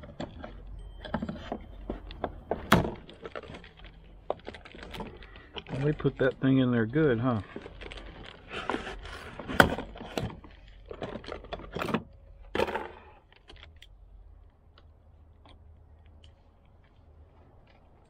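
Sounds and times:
cardboard box rustling: 0.0s - 12.0s.

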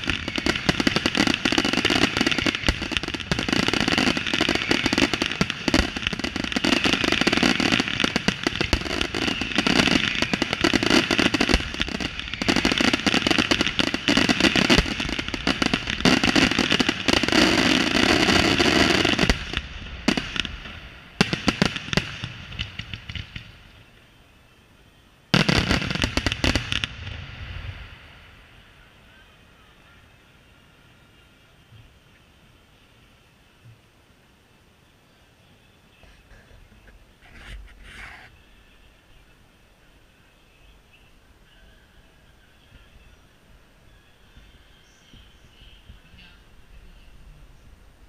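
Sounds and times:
fireworks bangs and crackling: 0.0s - 24.0s, 25.3s - 28.9s.

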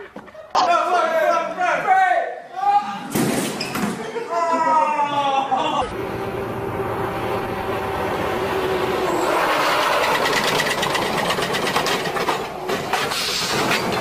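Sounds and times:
truck engine driving fast: 5.9s - 14.0s
tyres skidding on pavement: 6.9s - 14.0s.

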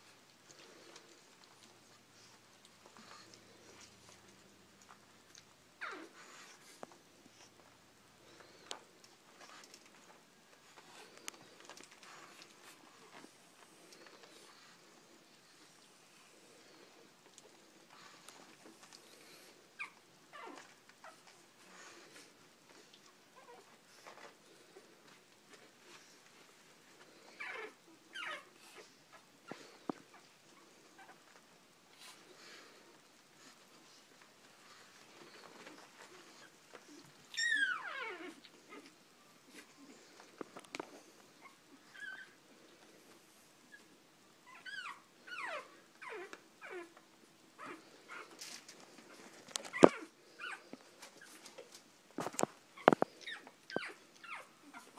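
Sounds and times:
puppies whimpering: 34.9s - 38.9s
puppy squealing: 37.3s - 38.3s.

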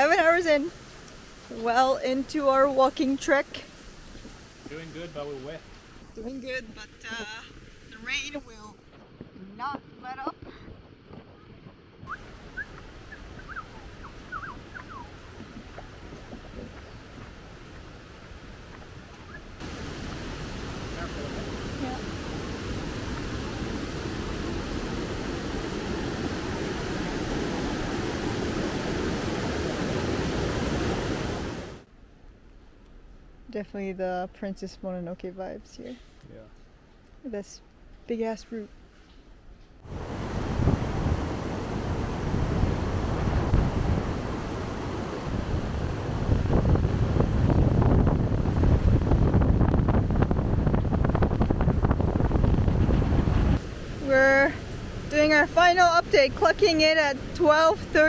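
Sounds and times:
wind buffeting microphone: 0.0s - 31.8s, 39.8s - 58.0s
river rushing over rocks: 19.6s - 31.9s.

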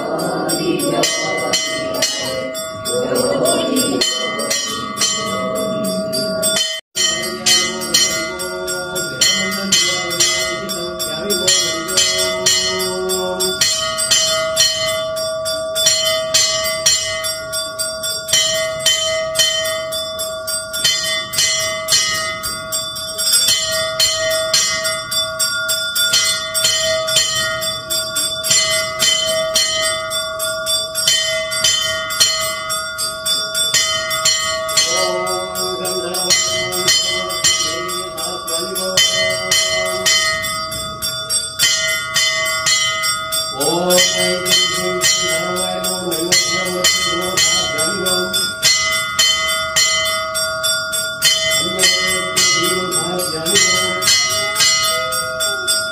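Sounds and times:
bell rung rapidly: 0.0s - 55.9s.

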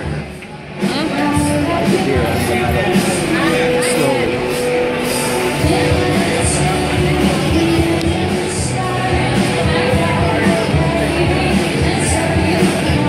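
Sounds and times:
drums: 0.0s - 13.0s
person singing: 0.8s - 13.0s.

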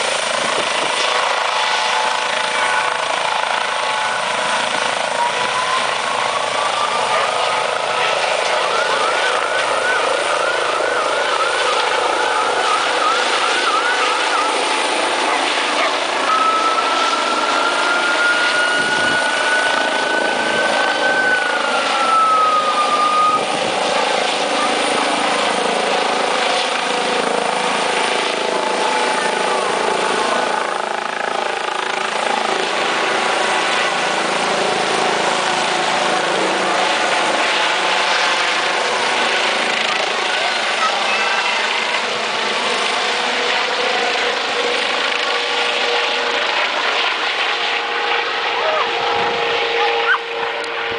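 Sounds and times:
helicopter turbine and rotor: 0.0s - 50.9s
high wavering whine: 0.4s - 29.8s.

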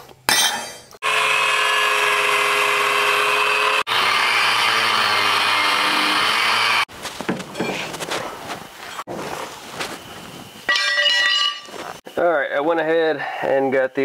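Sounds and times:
cutoff wheel cutting steel: 1.0s - 6.9s
handling sounds: 6.9s - 12.0s.

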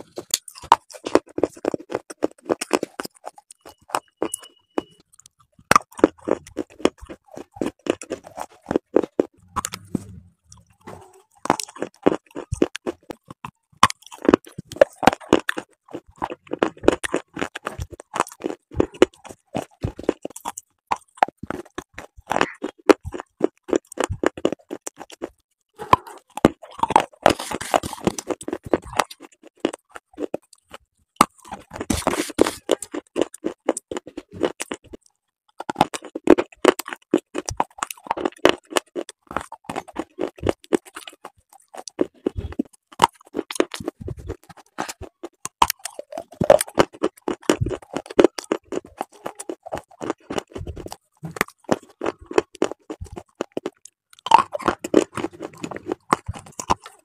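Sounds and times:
crunching and chewing: 0.0s - 57.0s.

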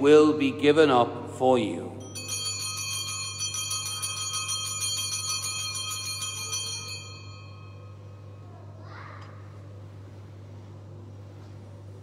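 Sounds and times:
altar bells ringing: 2.0s - 8.3s.

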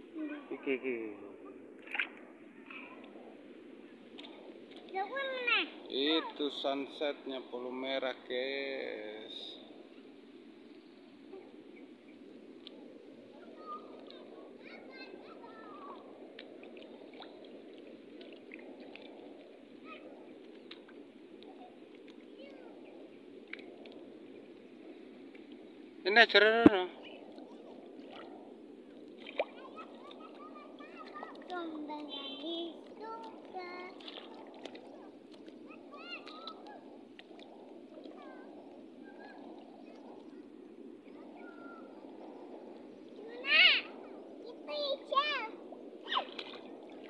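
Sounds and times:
surf rushing: 13.2s - 47.0s
child calling and squealing: 43.3s - 44.0s, 44.6s - 46.4s.

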